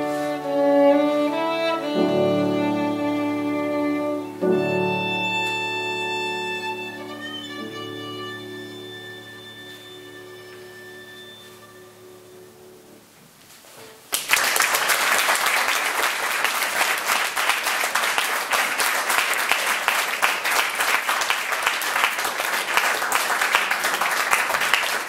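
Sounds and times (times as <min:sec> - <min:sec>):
violin note: 0:00.0 - 0:12.9
audience applauding: 0:14.1 - 0:25.0.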